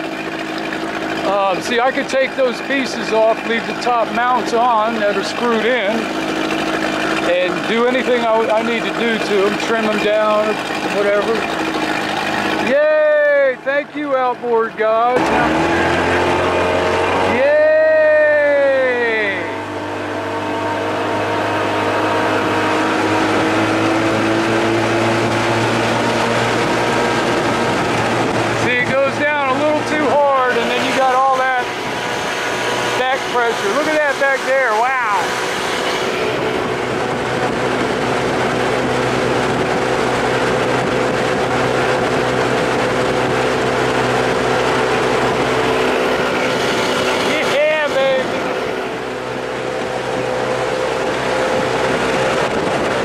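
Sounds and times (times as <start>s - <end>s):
boat on choppy water: 0.0s - 53.0s
outboard motor running: 0.0s - 53.0s
rushing wind: 15.2s - 53.0s.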